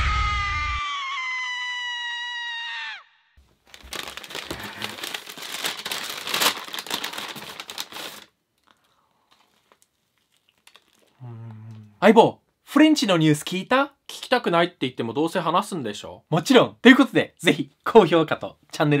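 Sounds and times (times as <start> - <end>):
paper bag crinkling: 3.4 - 8.7, 9.3 - 11.1.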